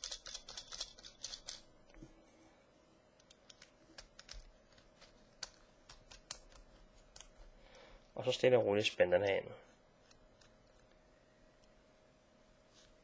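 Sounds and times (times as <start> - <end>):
metal threads clicking: 0.0 - 1.7.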